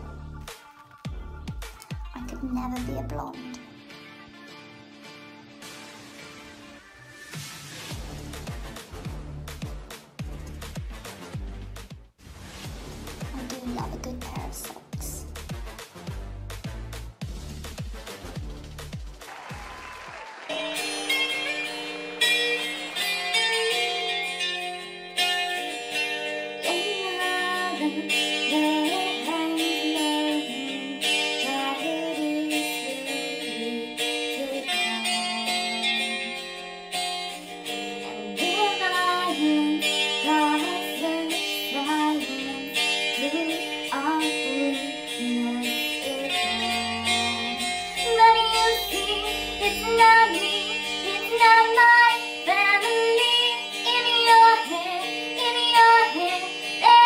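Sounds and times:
plucked guitar: 20.5 - 57.0
electronically altered singing voice: 43.3 - 57.0.

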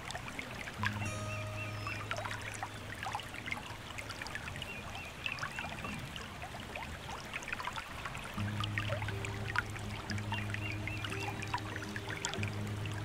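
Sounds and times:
small water splashes: 0.0 - 13.0
stream water babbling: 0.0 - 13.0
low background music: 0.1 - 5.0, 8.1 - 13.0.

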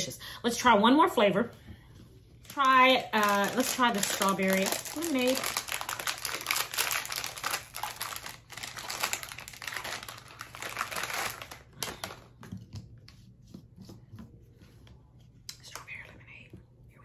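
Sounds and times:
packaging crinkling: 2.4 - 12.4.

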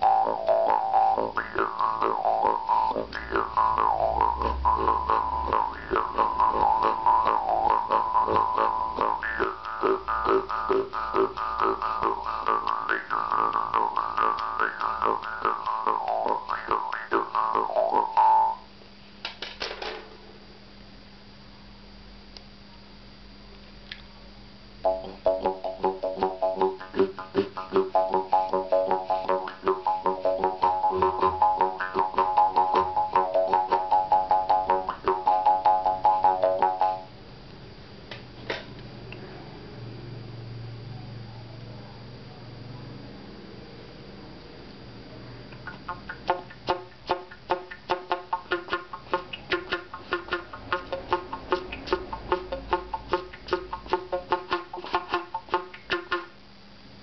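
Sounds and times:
jaw harp playing: 0.0 - 18.7, 24.8 - 37.1, 45.6 - 56.4.

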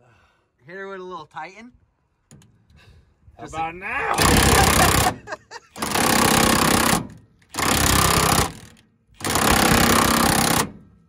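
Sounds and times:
impact wrench hammering: 5.8 - 10.8.

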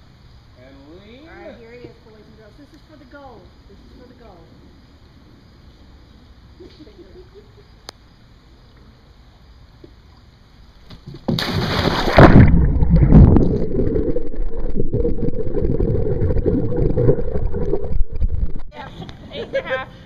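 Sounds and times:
person splashing into pool: 11.0 - 18.6
water churning and gurgling: 11.3 - 18.7.

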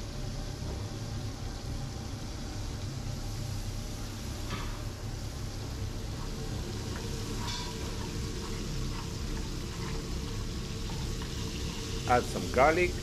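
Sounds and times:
oil sizzling in frying pans: 0.0 - 13.0
metal spoon stirring: 6.9 - 11.9.

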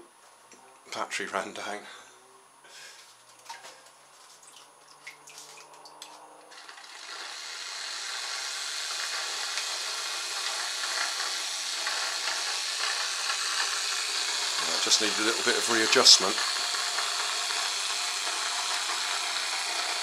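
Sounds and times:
water dripping and splashing: 3.3 - 6.2
small electric motor whirring: 6.5 - 20.0.

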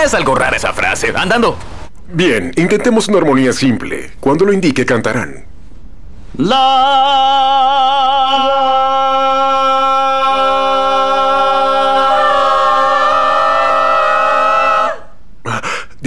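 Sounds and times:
group of voices singing: 6.4 - 15.2.

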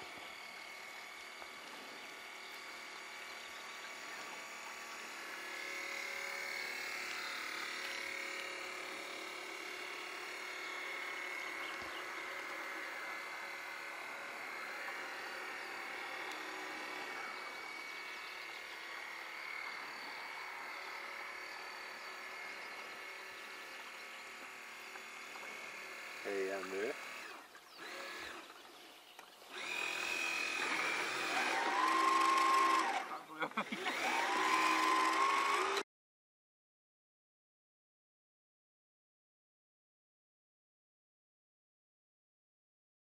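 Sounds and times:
small electric motor whining: 0.0 - 35.8.

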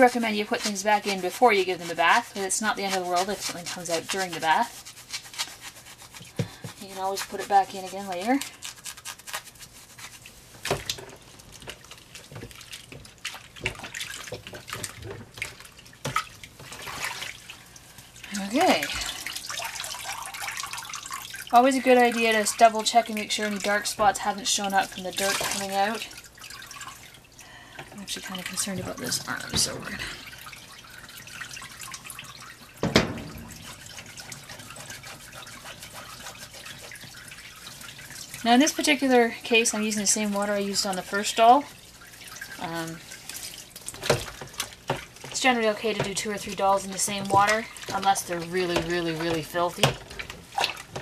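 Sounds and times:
cloth being scrubbed: 0.0 - 10.7, 33.3 - 43.7
water sloshing in a plastic basin: 0.0 - 51.0
thump: 32.8 - 33.7.

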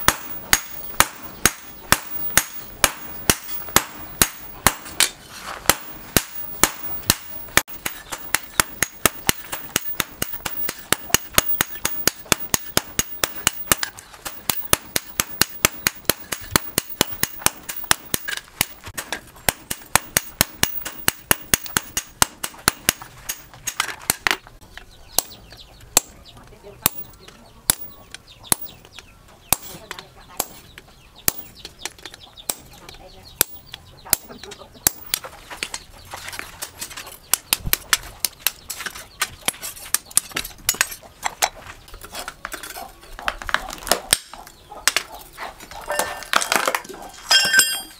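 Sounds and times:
hammer striking hot steel on anvil: 0.0 - 24.3, 47.3 - 47.9.

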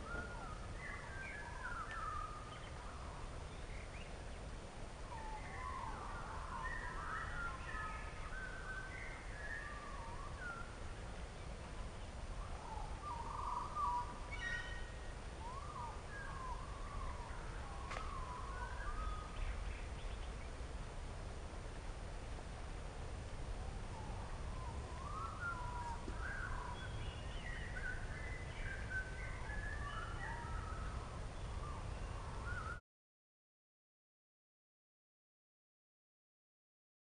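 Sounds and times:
birds singing and calling: 0.0 - 4.4, 5.0 - 20.6, 23.8 - 32.8
low outdoor rumble: 0.0 - 32.6.

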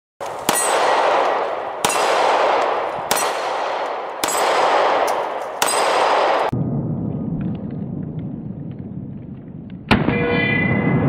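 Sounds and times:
handgun shots: 0.2 - 6.6.

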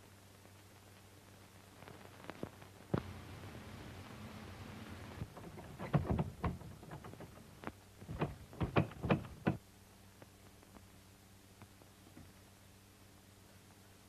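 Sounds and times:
film soundtrack hiss and hum: 0.0 - 14.0
irregular knocks: 5.2 - 9.6.

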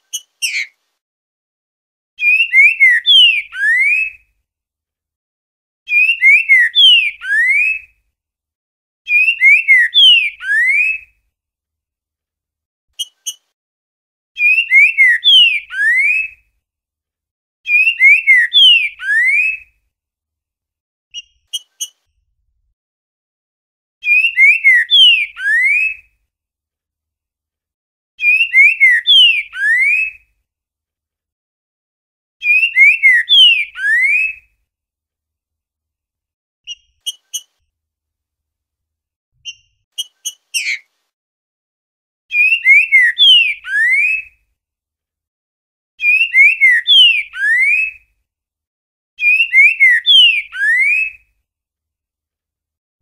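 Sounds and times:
bird whistled song: 0.0 - 0.8, 2.2 - 4.3, 5.9 - 7.9, 9.1 - 11.1, 14.4 - 16.4, 17.7 - 19.7, 21.1 - 22.0, 24.0 - 26.1, 28.2 - 30.2, 32.4 - 34.5, 36.7 - 37.5, 39.4 - 40.9, 42.3 - 44.4, 46.0 - 48.1, 49.2 - 51.3.

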